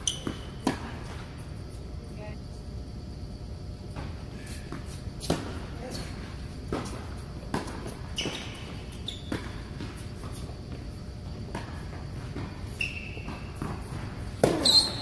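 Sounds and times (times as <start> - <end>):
racket hitting ball: 0.0 - 1.2, 5.2 - 5.8, 6.6 - 15.0
sneakers squeaking on court: 0.0 - 1.9, 3.8 - 15.0
ball bouncing: 13.2 - 15.0.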